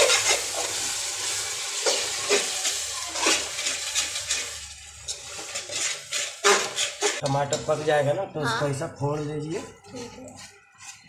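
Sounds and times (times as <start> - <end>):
spoon scraping metal pot: 0.0 - 0.9, 1.8 - 8.2, 9.1 - 11.0
hot oil sizzling: 0.0 - 11.0.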